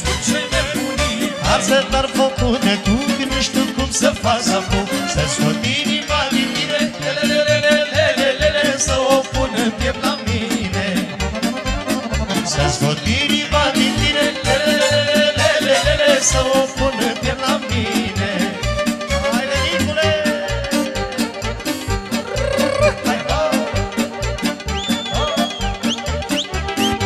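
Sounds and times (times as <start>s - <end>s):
accordion: 0.0s - 27.0s
folk dance music through pa: 0.0s - 27.0s
quick bass beat: 0.1s - 27.0s.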